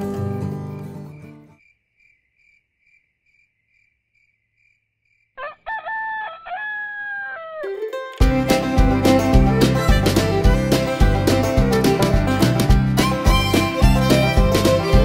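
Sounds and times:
bluegrass music: 0.0 - 1.1, 7.6 - 15.0
crickets chirping: 0.7 - 5.4
rooster crowing: 5.4 - 7.8.

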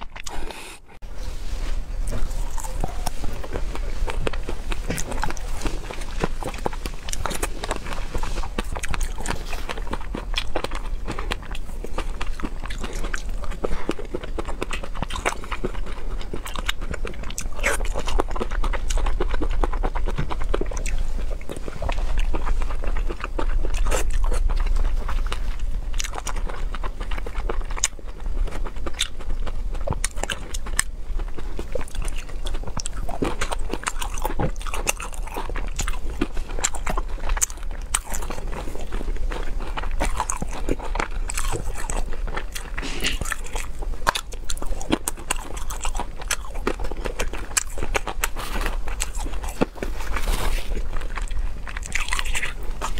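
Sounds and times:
person chewing: 0.0 - 52.9.

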